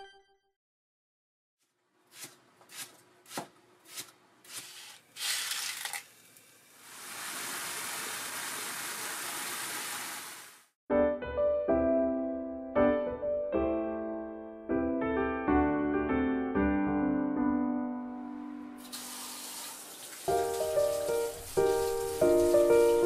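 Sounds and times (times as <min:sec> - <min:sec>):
sizzling in a frying pan: 0:18.8 - 0:23.0.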